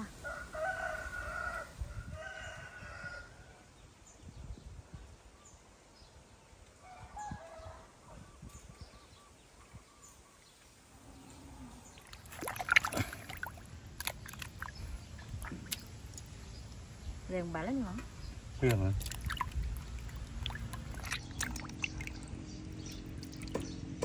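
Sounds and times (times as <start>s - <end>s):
sharp knocks and clatter: 23.4s - 24.0s.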